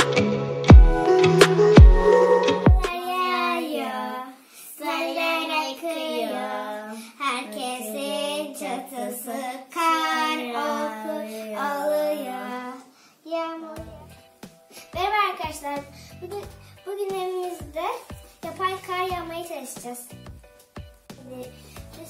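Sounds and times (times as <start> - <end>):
child singing long notes: 1.0 - 7.0, 9.8 - 12.9.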